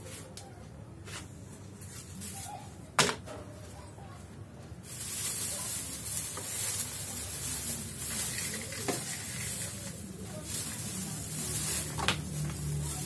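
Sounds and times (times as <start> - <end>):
broom sweeping: 1.0 - 2.8, 4.8 - 13.0
plastic bag rustling: 4.8 - 13.0.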